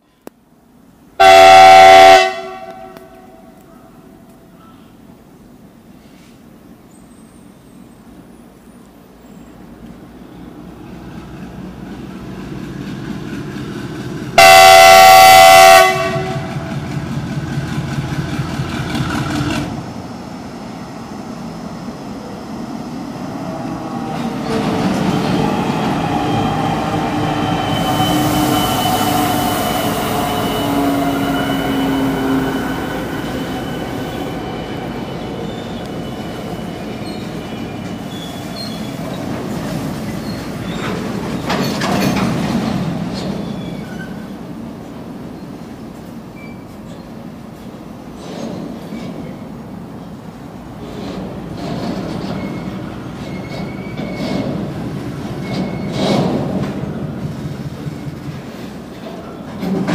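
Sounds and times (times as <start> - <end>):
locomotive horn: 1.2 - 3.5, 14.4 - 16.6, 26.4 - 36.0
train wheels clattering: 23.9 - 45.0, 46.0 - 49.6, 50.7 - 59.9.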